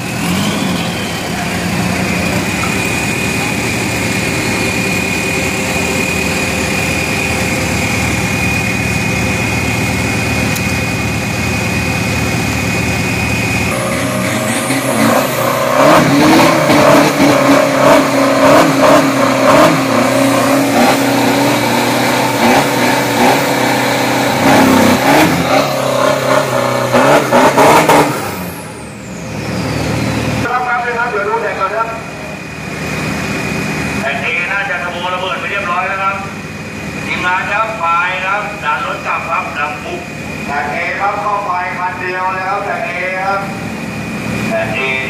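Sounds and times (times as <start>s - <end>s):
engine revving hard: 0.0s - 10.5s, 11.5s - 30.5s
truck engine idling: 0.0s - 45.0s.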